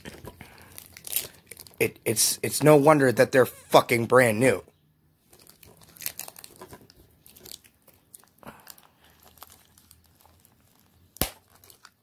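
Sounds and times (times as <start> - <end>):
plastic cases rustling: 5.2 - 8.1.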